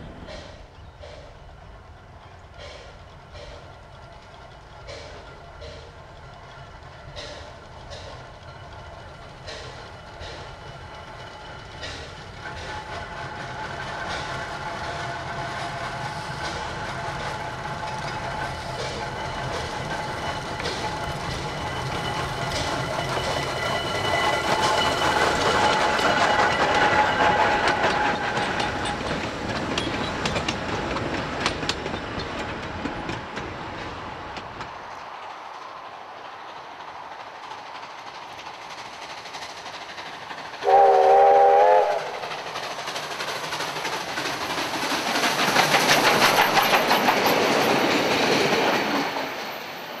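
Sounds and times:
wheels clicking over rail joints: 0.0s - 40.7s, 42.2s - 49.6s
steam locomotive rolling past: 0.0s - 50.0s
steam train passing: 0.0s - 50.0s
steam whistle: 40.6s - 42.2s.

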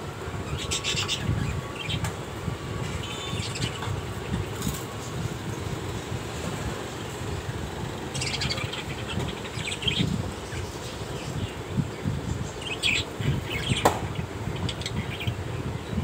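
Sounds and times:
budgerigars chirping: 0.5s - 2.0s, 2.8s - 3.9s, 8.1s - 11.6s, 12.4s - 15.4s.

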